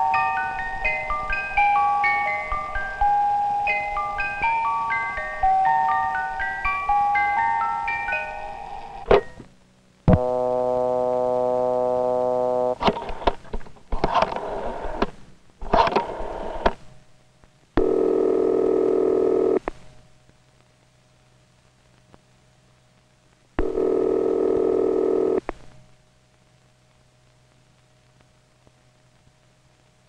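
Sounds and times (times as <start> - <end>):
buzzing tone: 10.1 - 12.8
telephone dial tone: 10.1 - 12.8, 17.8 - 19.6, 23.6 - 25.4.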